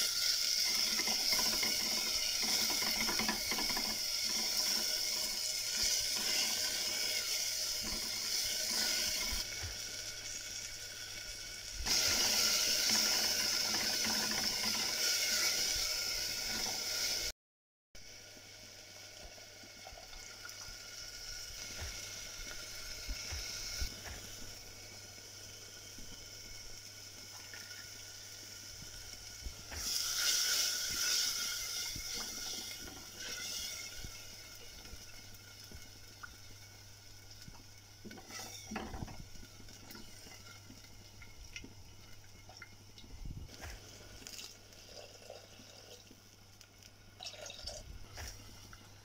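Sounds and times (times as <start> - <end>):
gravy sizzling and bubbling: 0.0 - 17.4, 18.0 - 49.0.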